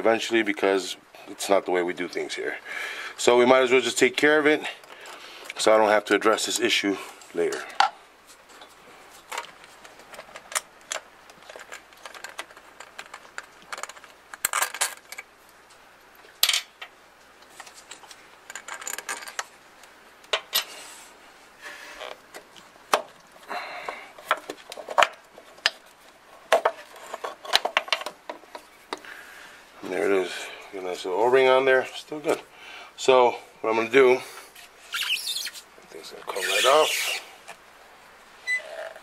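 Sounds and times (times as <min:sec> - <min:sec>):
tools and metal parts clinking: 0:10.2 - 0:15.3, 0:18.5 - 0:19.5.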